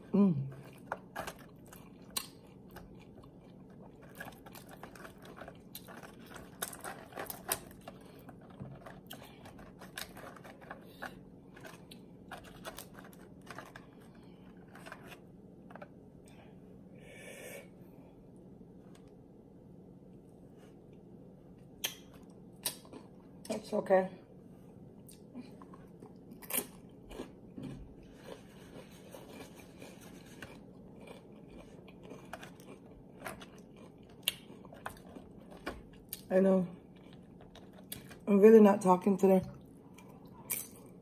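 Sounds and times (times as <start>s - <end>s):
crunching and chewing chips: 0.0s - 16.4s, 21.8s - 23.7s, 25.0s - 41.0s.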